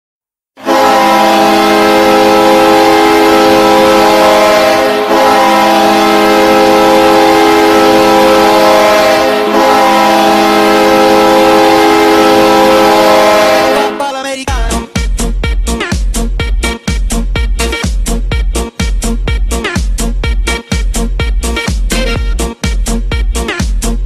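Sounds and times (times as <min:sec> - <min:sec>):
deep air horn blasts: 0:00.6 - 0:14.4.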